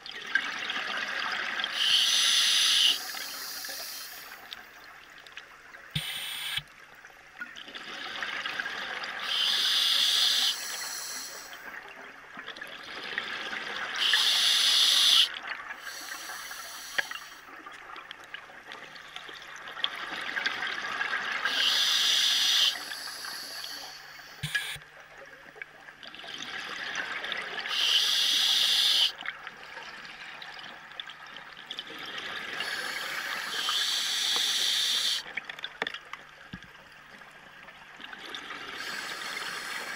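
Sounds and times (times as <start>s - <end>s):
regulator breath hissing: 1.7s - 4.5s, 6.0s - 6.6s, 9.2s - 11.6s, 14.0s - 17.5s, 21.5s - 24.8s, 27.7s - 29.1s, 32.6s - 35.3s, 38.8s - 39.9s.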